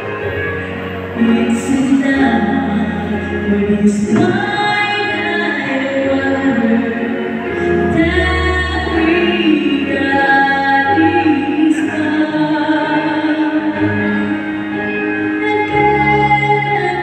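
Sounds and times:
woman singing a slow song: 0:01.1 - 0:17.0.

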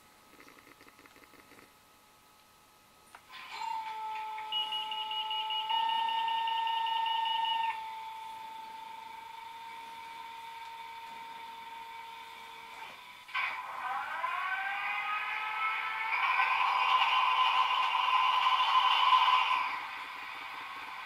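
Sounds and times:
electronic whining tones: 0:03.3 - 0:21.0
electronic diesel engine start: 0:09.1 - 0:21.0.

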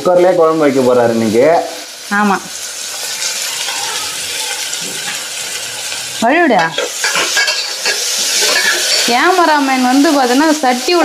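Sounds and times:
onions sizzling in hot oil: 0:00.0 - 0:11.0
spatula stirring: 0:06.6 - 0:09.3.

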